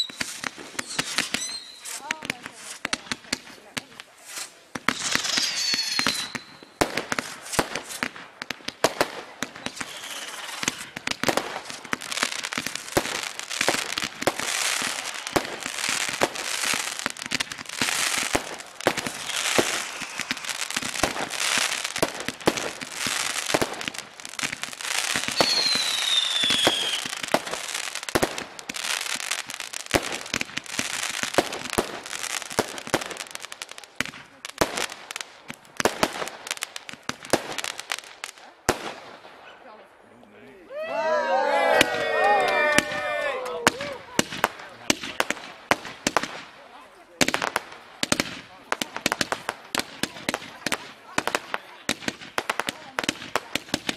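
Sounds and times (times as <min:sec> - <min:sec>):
falling firework whistle: 0:00.0 - 0:02.0, 0:04.9 - 0:06.8, 0:09.8 - 0:11.0, 0:18.8 - 0:21.7, 0:25.2 - 0:27.2
firework hissing and crackling: 0:00.0 - 0:39.4, 0:42.6 - 0:53.9
fireworks cracking and banging: 0:00.0 - 0:39.9, 0:41.5 - 0:53.9.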